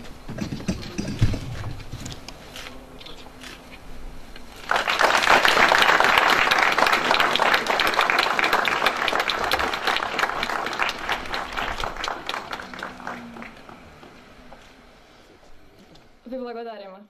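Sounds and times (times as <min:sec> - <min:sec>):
audience applauding: 0:04.6 - 0:14.7.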